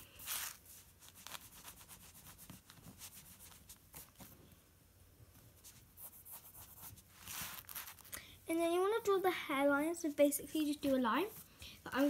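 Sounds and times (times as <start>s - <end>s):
pencil scratching on paper: 5.6s - 8.0s.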